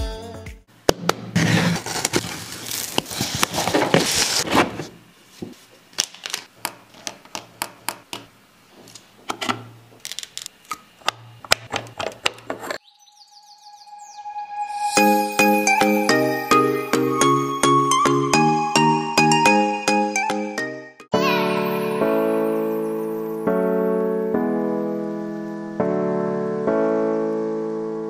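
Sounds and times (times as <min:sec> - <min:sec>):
cardboard box rustling and scraping: 0:01.3 - 0:05.6.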